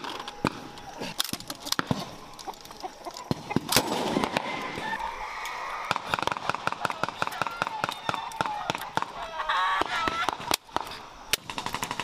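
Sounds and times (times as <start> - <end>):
steady background noise: 0.0 - 12.0
gunshots cracking: 3.3 - 4.8, 10.2 - 12.0.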